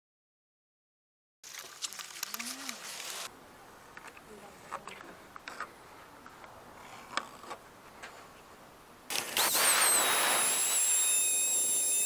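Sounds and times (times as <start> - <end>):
router high whine: 9.1 - 12.0
router motor rushing: 9.1 - 12.0.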